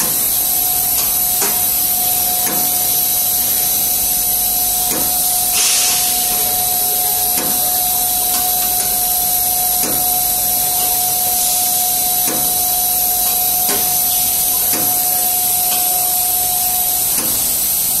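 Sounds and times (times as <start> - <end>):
extrusion machine hiss: 0.0 - 18.0
machine whine: 0.0 - 18.0.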